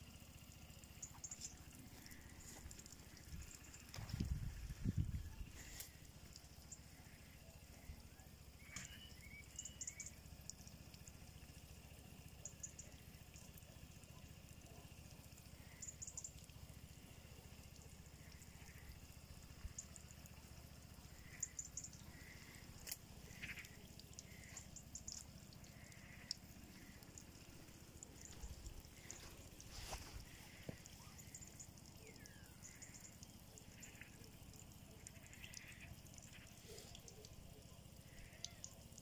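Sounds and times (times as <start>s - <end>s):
low steady rumble: 0.0s - 39.0s
faint short chirps: 8.6s - 10.2s.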